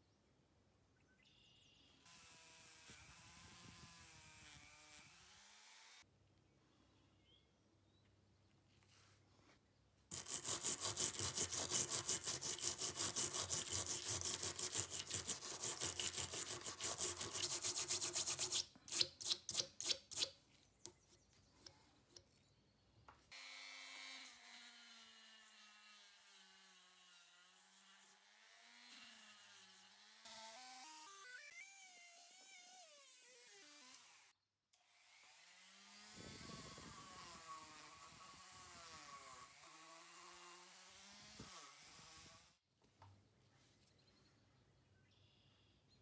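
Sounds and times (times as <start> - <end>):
stiff brush scrubbing steel: 10.1 - 20.3.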